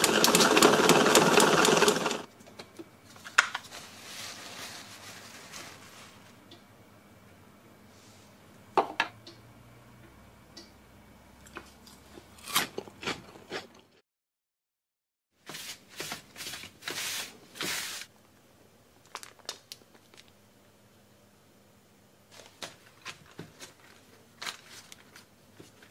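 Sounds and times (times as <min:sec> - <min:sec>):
plastic wrapping crinkling: 0:03.2 - 0:06.4, 0:19.0 - 0:20.4, 0:22.4 - 0:25.9.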